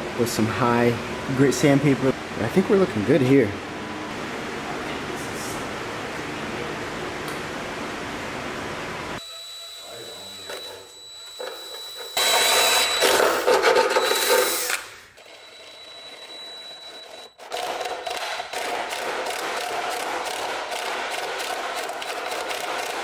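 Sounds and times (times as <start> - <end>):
drill cutting sheet metal: 11.4 - 14.9.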